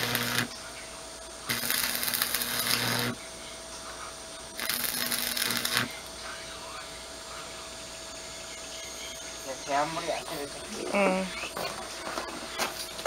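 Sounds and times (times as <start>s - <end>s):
crackling sizzling welding arc: 0.0s - 0.6s, 1.4s - 3.2s, 4.5s - 6.3s
low welder hum: 0.0s - 0.7s, 1.3s - 10.8s.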